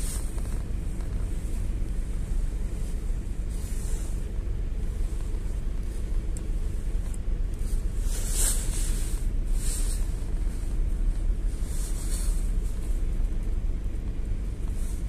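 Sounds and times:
engine and road rumble: 0:00.0 - 0:15.0
short hisses: 0:08.0 - 0:10.0.

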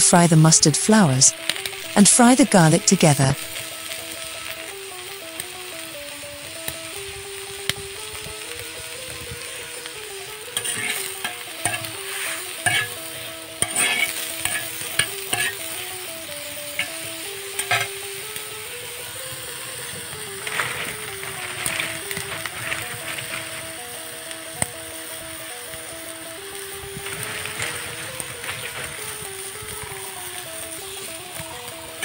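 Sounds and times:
food sizzling in pan: 0:00.3 - 0:32.0
metal spatula scraping pan: 0:10.6 - 0:11.1, 0:11.7 - 0:13.0, 0:13.6 - 0:15.6.

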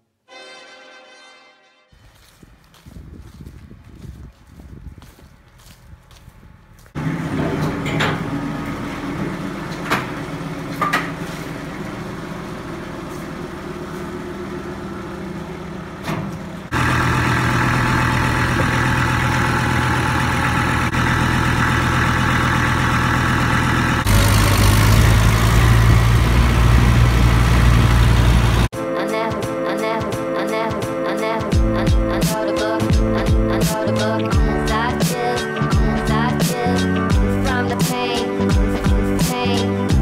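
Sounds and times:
tractor diesel engine running: 0:02.1 - 0:28.7.

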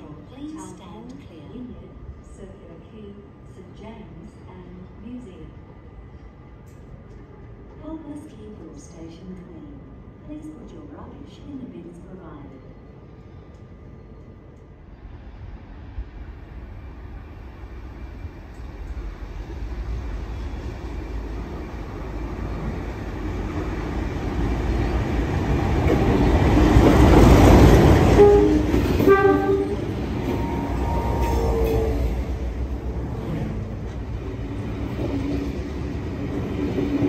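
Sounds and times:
diesel train passing: 0:12.9 - 0:37.0
train horn blast: 0:28.1 - 0:32.4.

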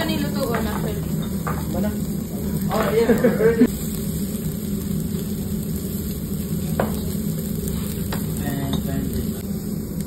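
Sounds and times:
beef sizzling on grill: 0:00.0 - 0:10.0
steady low hum: 0:00.0 - 0:10.0.

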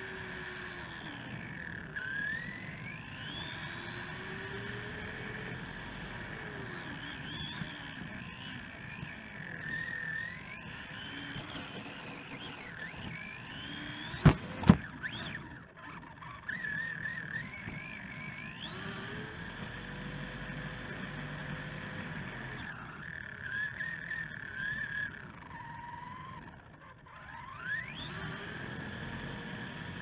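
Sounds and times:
electric motor whining: 0:00.0 - 0:30.0
wheels rolling on pavement: 0:04.5 - 0:18.8.

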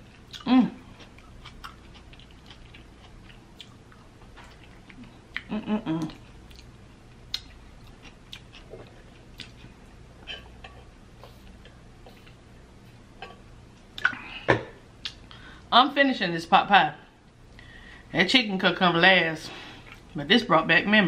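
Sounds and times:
wet chewing clicks and smacks: 0:01.0 - 0:09.6.

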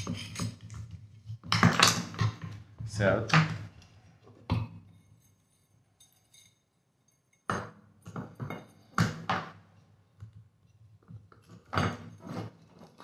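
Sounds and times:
metal clinks: 0:04.8 - 0:09.0.

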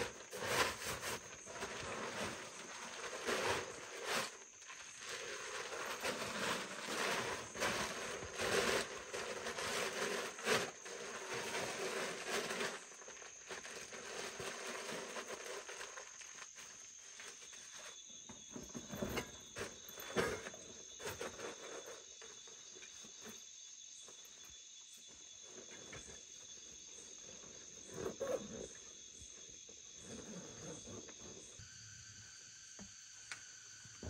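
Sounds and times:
backpack and plastic bag rustling: 0:00.0 - 0:22.0.

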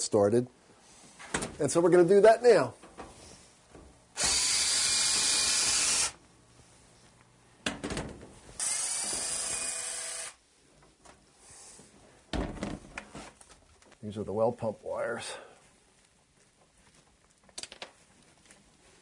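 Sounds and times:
cordless drill running: 0:04.2 - 0:06.2, 0:08.6 - 0:10.4.

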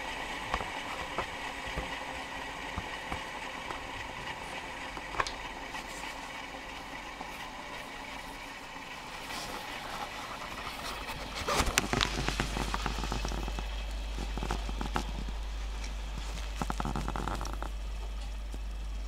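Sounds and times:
tool scraping spinning wood: 0:00.0 - 0:17.8
lathe motor humming: 0:00.0 - 0:19.0
wood chips crackling: 0:09.1 - 0:18.8.

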